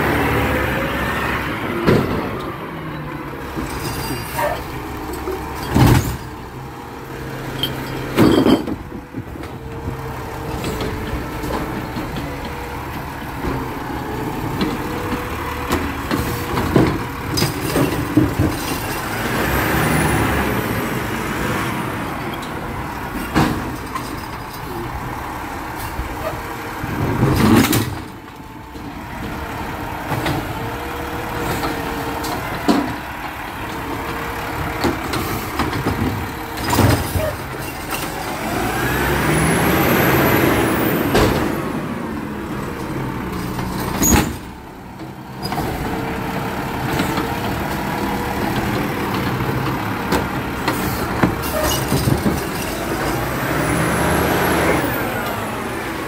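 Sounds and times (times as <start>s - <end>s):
garbage truck engine revving: 0.0s - 56.0s.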